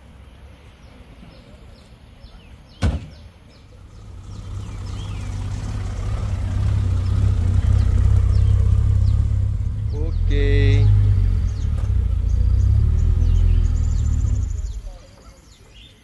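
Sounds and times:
car engine rumble: 3.0 - 15.4.

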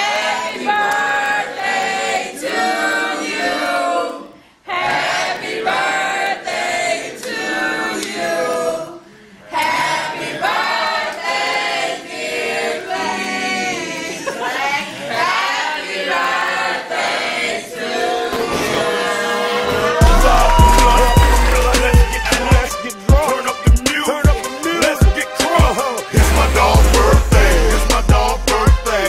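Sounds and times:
choir singing: 0.0 - 29.0.

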